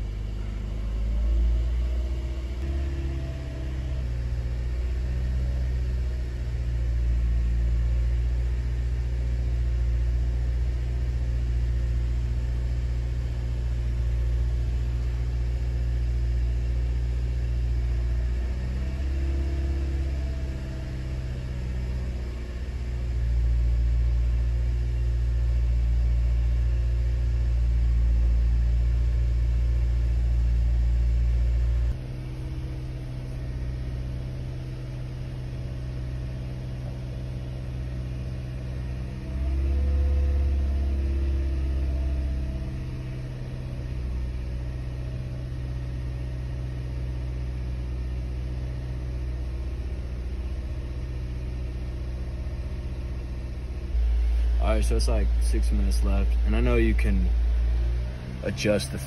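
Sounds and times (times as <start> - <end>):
car engine running steadily: 0.0 - 59.0
low rumble: 49.4 - 59.0.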